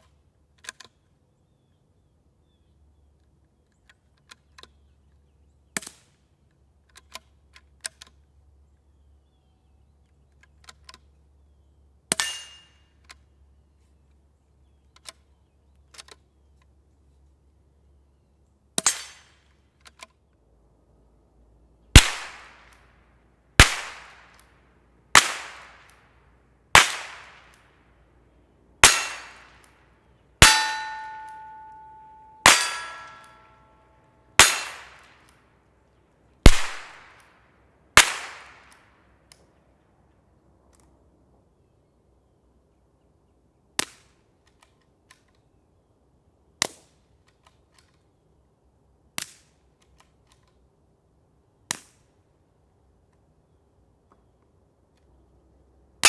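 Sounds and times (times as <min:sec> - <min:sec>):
loud rifle shots: 0:21.9 - 0:22.7, 0:23.6 - 0:24.4, 0:25.1 - 0:25.9, 0:26.7 - 0:27.6, 0:28.8 - 0:29.6, 0:30.4 - 0:33.4, 0:34.4 - 0:35.2, 0:36.4 - 0:37.2, 0:38.0 - 0:38.7
suppressed rifle shots: 0:21.9 - 0:22.8, 0:23.6 - 0:24.5, 0:25.1 - 0:26.0, 0:26.7 - 0:27.6, 0:28.8 - 0:29.7, 0:30.4 - 0:33.4, 0:34.4 - 0:35.3, 0:36.4 - 0:37.2, 0:38.0 - 0:38.7
metallic ring: 0:30.4 - 0:33.9.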